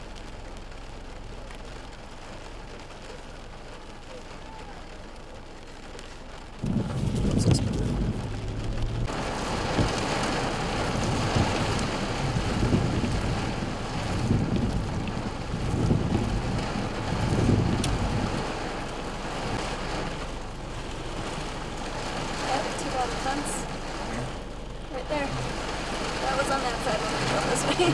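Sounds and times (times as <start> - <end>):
heavy rain hiss: 0.0 - 27.9
rumbling wind gusts: 6.4 - 27.9.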